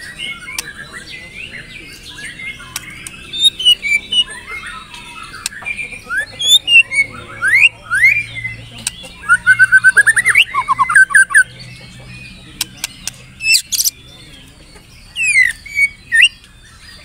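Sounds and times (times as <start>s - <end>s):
other birds chattering faintly: 0.0s - 17.0s
bird singing clear whistles: 9.2s - 11.5s, 15.2s - 17.0s.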